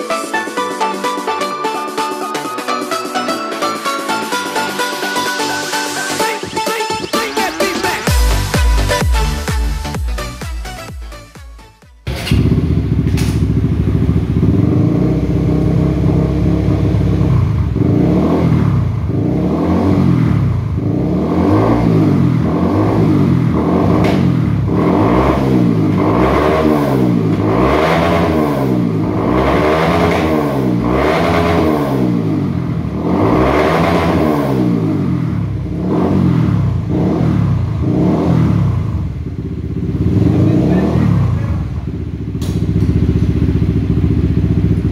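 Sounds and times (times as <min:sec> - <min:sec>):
motorcycle engine revving: 0:12.0 - 0:44.9.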